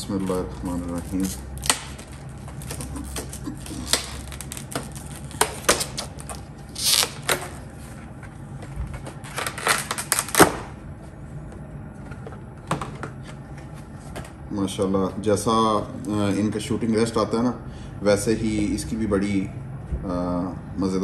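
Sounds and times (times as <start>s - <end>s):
plastic packaging crackling: 0.6s - 7.7s, 9.2s - 10.6s.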